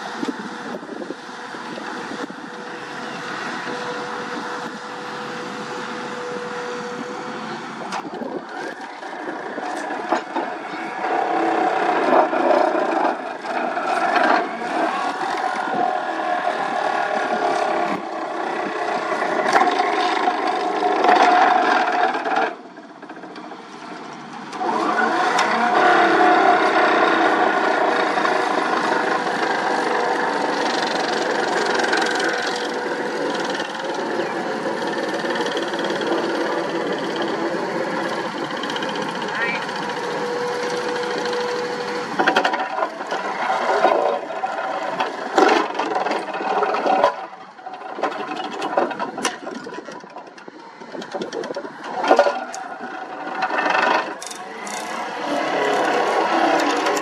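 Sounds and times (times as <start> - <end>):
diesel engine running: 0.0 - 57.0
vibratory hammer drone: 25.0 - 57.0.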